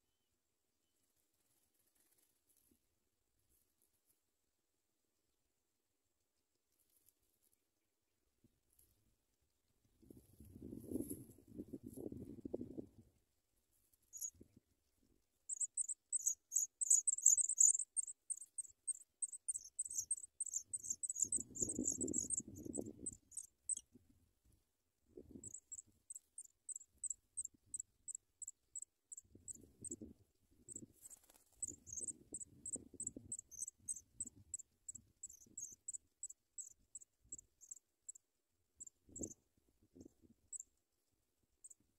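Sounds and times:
nestlings cheeping: 0:15.5 - 0:23.8, 0:30.7 - 0:34.0
rustling of nest grass: 0:30.8 - 0:32.1.

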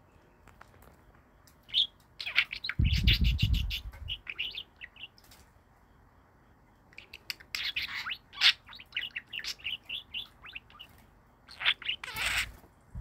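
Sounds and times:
budgerigars chirping: 0:01.7 - 0:05.2, 0:07.0 - 0:12.6.

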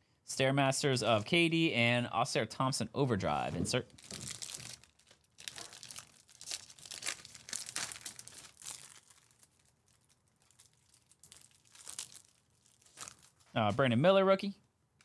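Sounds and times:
foil wrapper crinkling and tearing: 0:03.9 - 0:13.5.

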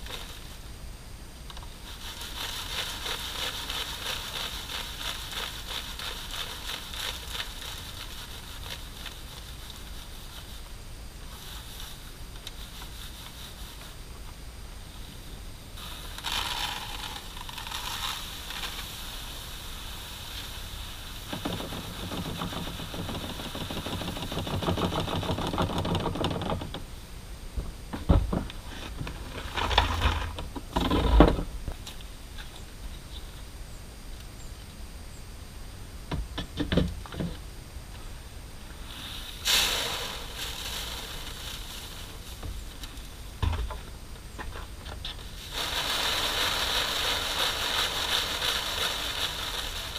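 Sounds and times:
grain rattling in plastic crates: 0:00.0 - 0:00.6, 0:01.7 - 0:14.0, 0:15.8 - 0:26.8, 0:28.0 - 0:31.9, 0:38.8 - 0:49.9.

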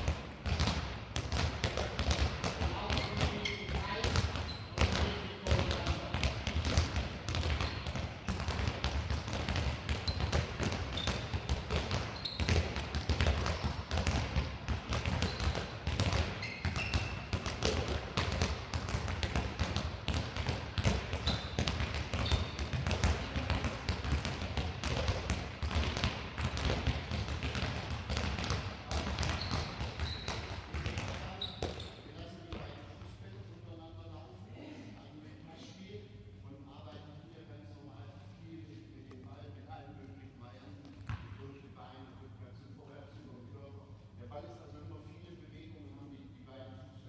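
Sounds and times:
balls bouncing on hall floor: 0:00.0 - 0:33.0, 0:40.8 - 0:41.4
shoes squeaking on floor: 0:03.0 - 0:03.8, 0:04.4 - 0:05.2, 0:10.0 - 0:11.3, 0:12.1 - 0:12.7, 0:15.2 - 0:15.6, 0:16.2 - 0:17.3, 0:22.2 - 0:22.6, 0:29.3 - 0:30.5, 0:31.2 - 0:32.2.

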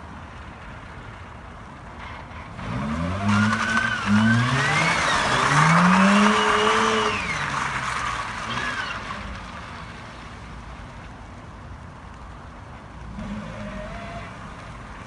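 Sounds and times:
tyres squealing on asphalt: 0:02.0 - 0:09.9, 0:13.2 - 0:14.7
rotary engine revving: 0:02.6 - 0:09.4.

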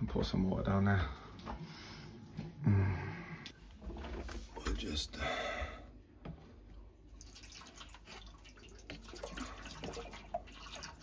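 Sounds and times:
water trickling and splashing: 0:07.1 - 0:11.0.

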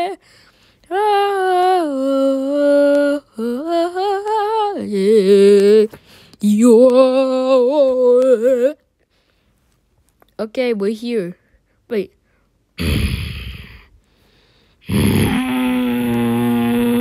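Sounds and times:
person singing wordless tune: 0:00.0 - 0:08.9, 0:14.8 - 0:17.0.

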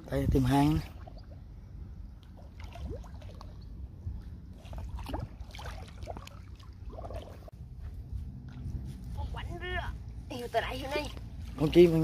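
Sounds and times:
water sloshing and trickling: 0:00.0 - 0:07.6
small splashes and clicks: 0:04.6 - 0:07.5.

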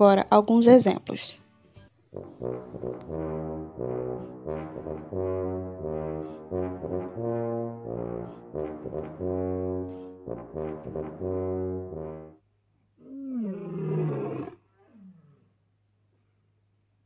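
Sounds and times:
tuba playing low notes: 0:02.1 - 0:12.4
lion roaring: 0:13.0 - 0:15.5.

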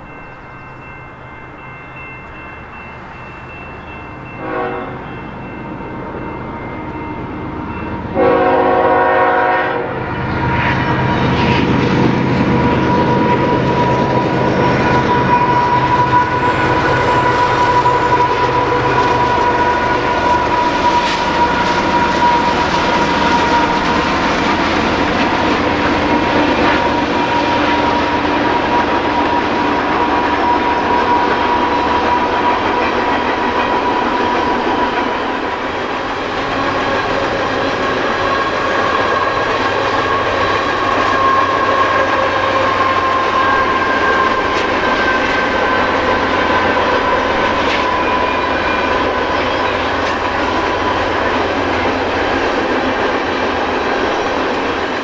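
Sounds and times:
high-pitched ring: 0:00.0 - 0:08.4, 0:10.0 - 0:29.5, 0:38.2 - 0:52.0
train wheels rumbling on rails: 0:00.0 - 0:55.0
locomotive horn blast: 0:04.4 - 0:05.0, 0:08.1 - 0:11.2.

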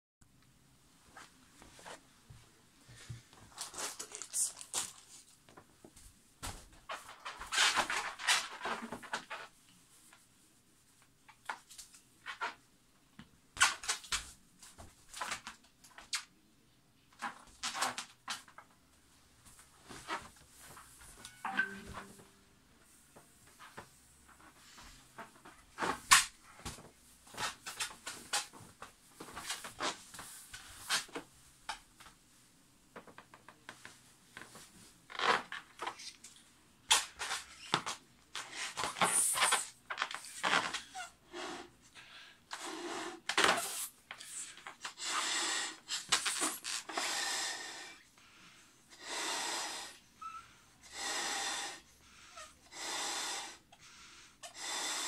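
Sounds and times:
balloon rubbing and squeaking: 0:38.4 - 0:41.6, 0:43.3 - 0:44.4
breaths blown into balloon: 0:48.9 - 0:50.0, 0:50.8 - 0:55.0.

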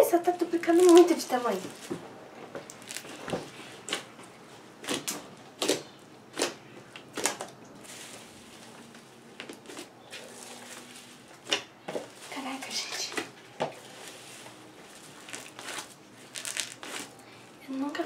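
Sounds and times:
slime crackly squishes and pops: 0:02.7 - 0:03.3, 0:15.2 - 0:17.1.

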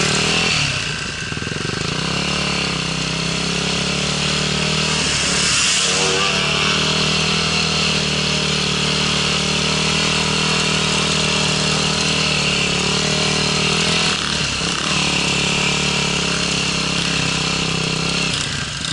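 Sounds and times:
dirt bike engine running: 0:00.0 - 0:18.9
high hiss: 0:04.2 - 0:08.1.

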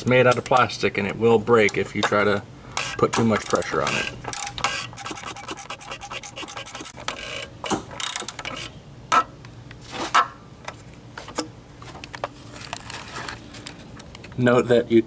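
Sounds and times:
ratcheting socket wrench clicking: 0:02.8 - 0:05.6
socket rubbing on cap: 0:04.7 - 0:07.0.

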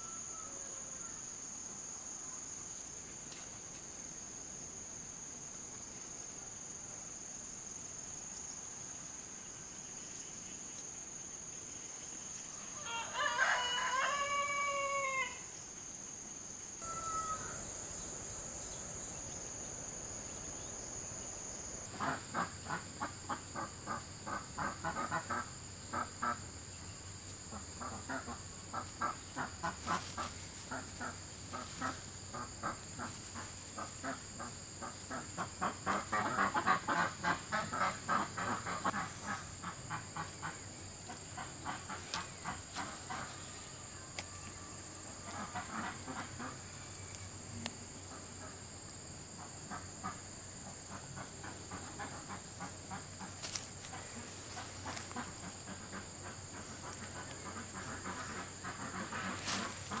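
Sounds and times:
poultry calling: 0:16.8 - 0:19.0, 0:51.2 - 1:00.0.

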